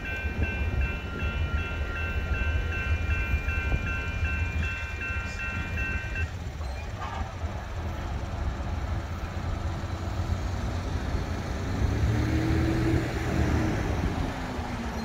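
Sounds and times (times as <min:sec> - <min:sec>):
vehicles driving past: 0:07.1 - 0:15.0.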